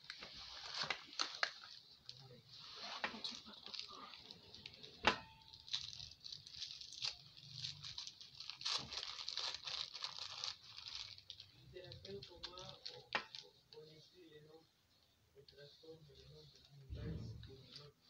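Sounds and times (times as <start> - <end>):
paper rustling and crinkling: 0.0 - 13.5.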